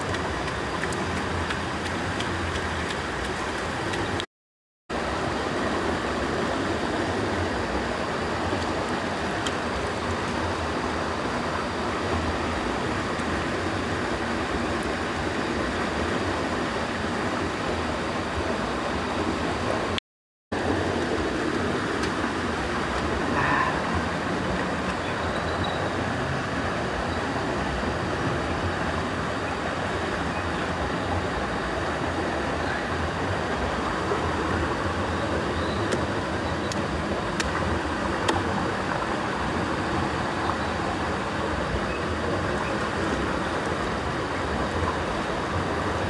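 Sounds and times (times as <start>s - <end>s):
stream flowing over rocks: 0.0s - 4.3s, 4.9s - 46.0s.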